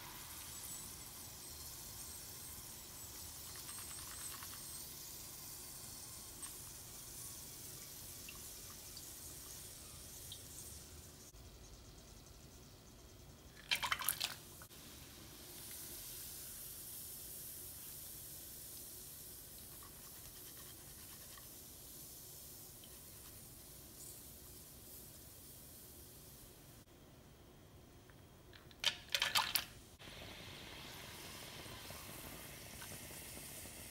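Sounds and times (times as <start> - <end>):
hot oil sizzling: 0.0 - 11.4, 14.5 - 26.8, 29.2 - 33.9
loud oil crackle: 30.0 - 33.9.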